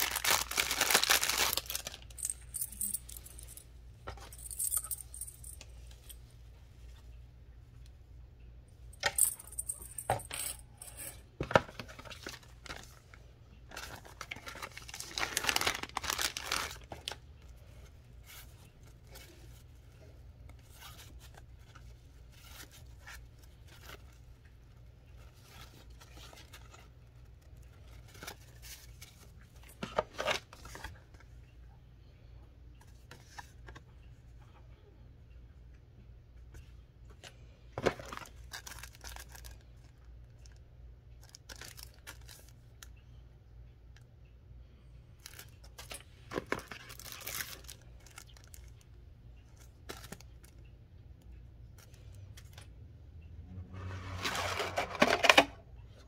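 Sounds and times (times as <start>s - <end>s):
plastic packaging crinkling: 0.0s - 3.2s, 11.6s - 17.3s, 37.8s - 40.6s, 41.2s - 42.8s, 45.2s - 48.8s.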